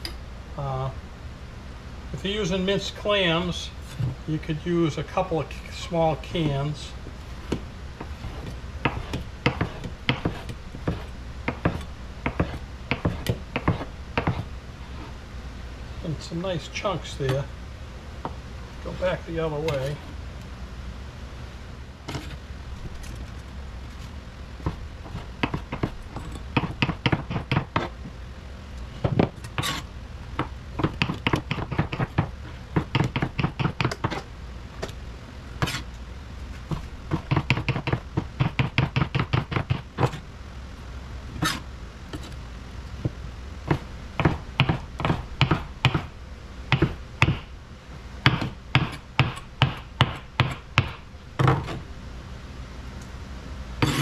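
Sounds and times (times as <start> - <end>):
knife chopping on plastic board: 8.2 - 14.5, 24.6 - 26.0, 26.6 - 27.9, 30.4 - 34.2, 36.7 - 40.2, 43.0 - 46.1, 46.7 - 47.5, 48.3 - 51.8.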